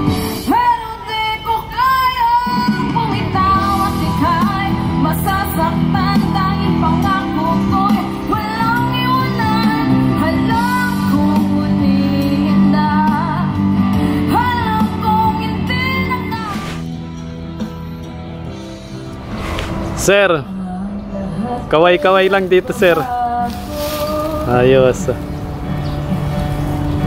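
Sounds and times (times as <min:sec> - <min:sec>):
woman singing: 0:00.1 - 0:16.8, 0:20.5 - 0:21.8, 0:22.9 - 0:24.5.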